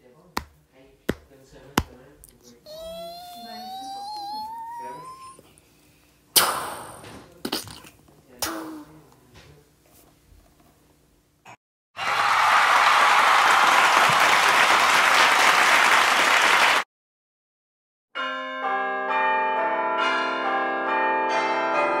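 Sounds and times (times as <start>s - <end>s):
applause: 12.0s - 16.9s
music of bell-like notes: 18.2s - 22.0s.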